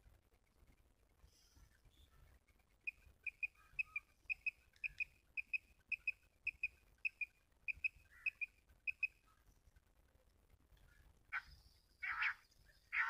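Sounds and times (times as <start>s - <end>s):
quail call chirps: 2.9s - 9.2s, 11.3s - 13.0s.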